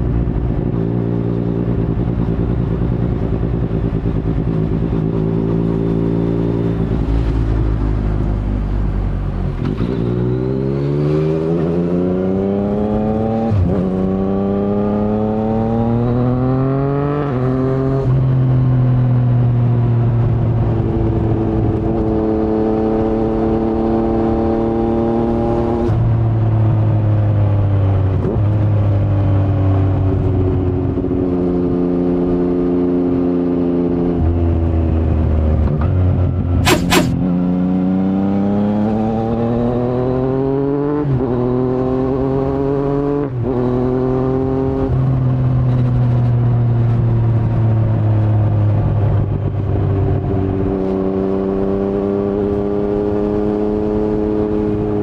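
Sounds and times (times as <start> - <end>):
motorcycle engine accelerating: 0.0 - 55.0
motorcycle gear shifts: 36.6 - 37.3.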